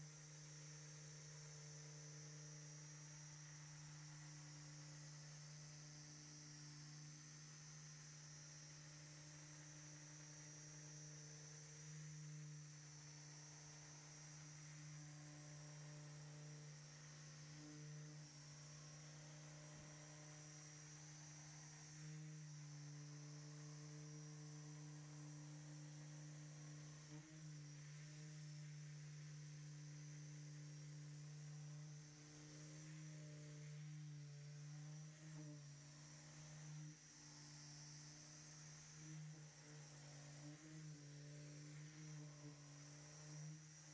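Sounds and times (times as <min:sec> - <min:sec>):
electric polisher humming: 0:11.8 - 0:28.6, 0:29.4 - 0:43.9.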